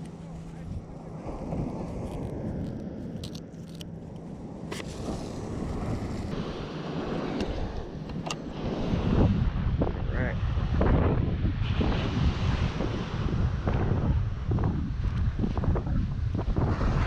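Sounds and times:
wind rumble on microphone: 0:00.0 - 0:17.0
scissors snipping: 0:02.0 - 0:04.9
surf: 0:04.5 - 0:17.0.

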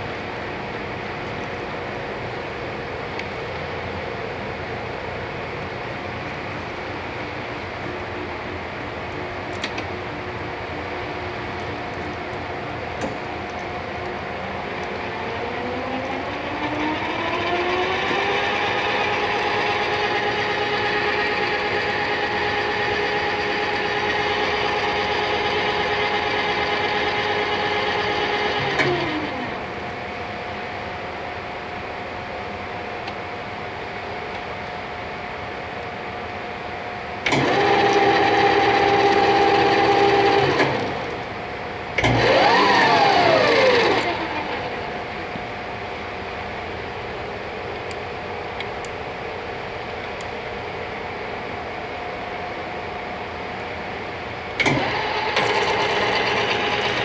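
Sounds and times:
lathe motor whine: 0:00.0 - 0:57.0.

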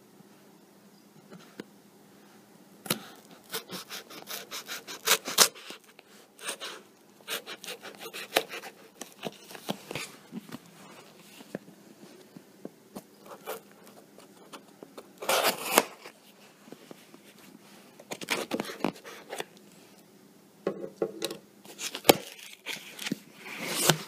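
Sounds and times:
fingers scratching cardboard box: 0:03.5 - 0:05.6, 0:06.4 - 0:09.7.

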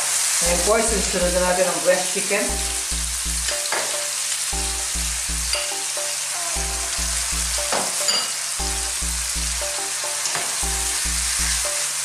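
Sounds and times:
oil sizzling in a frying pan: 0:00.0 - 0:12.0
low repeating background music: 0:02.5 - 0:03.7, 0:04.6 - 0:06.0, 0:06.6 - 0:07.8, 0:08.6 - 0:11.8.

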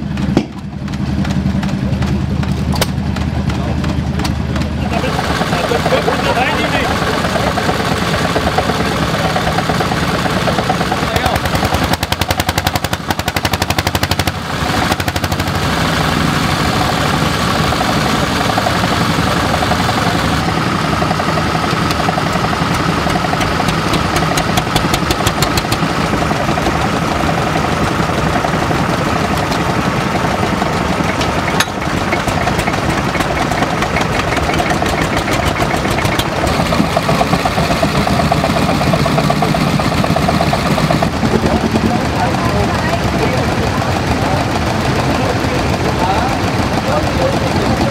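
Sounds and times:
stationary engines popping: 0:00.0 - 0:47.9.

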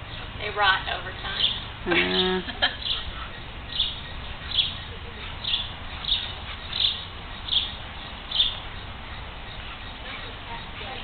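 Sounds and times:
bird chirping: 0:00.0 - 0:11.0
low background hiss: 0:00.0 - 0:11.0.

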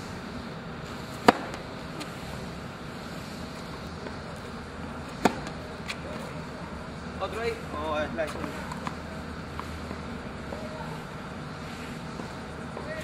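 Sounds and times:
racquet hitting tennis ball: 0:01.1 - 0:02.1, 0:05.1 - 0:05.6.

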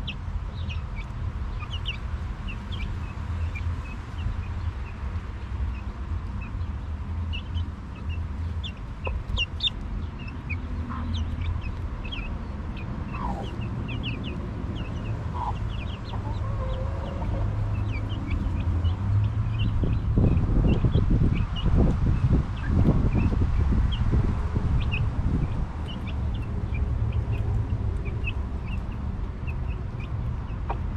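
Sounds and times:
chicks peeping: 0:00.0 - 0:30.9
steady low rumble: 0:00.0 - 0:30.9
hen clucking: 0:08.0 - 0:18.8, 0:30.4 - 0:30.9.

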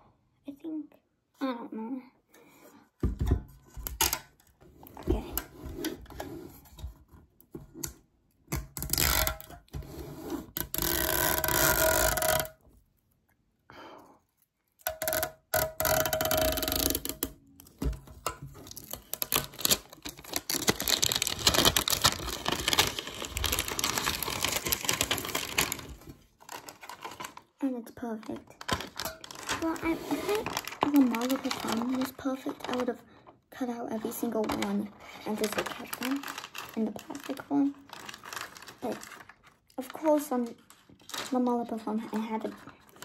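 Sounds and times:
packaging rustling and crinkling: 0:16.1 - 0:27.6, 0:28.2 - 0:33.3, 0:34.0 - 0:43.0.

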